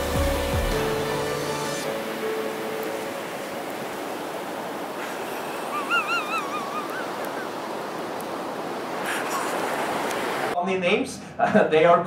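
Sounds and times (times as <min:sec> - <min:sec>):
ocean waves on shore: 0:00.0 - 0:10.6
short warbling call: 0:05.6 - 0:07.5.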